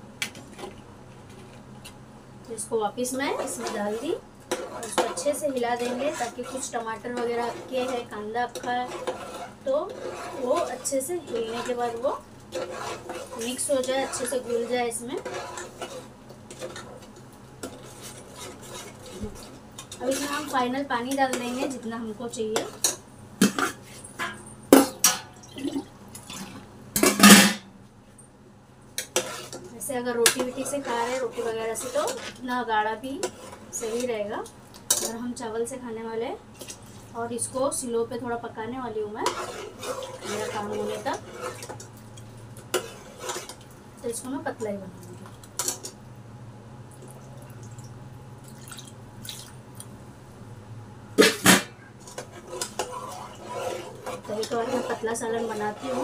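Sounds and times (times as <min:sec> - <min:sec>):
low steady hum: 0:00.0 - 0:56.0
liquid trickling into pot: 0:46.9 - 0:49.9
water pouring and splashing: 0:47.0 - 0:49.9.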